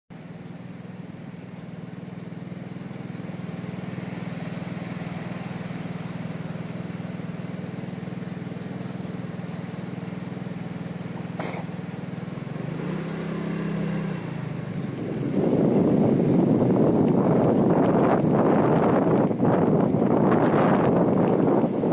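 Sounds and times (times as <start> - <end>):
car engine idling: 0.1 - 21.9
wind noise on microphone: 14.8 - 21.9.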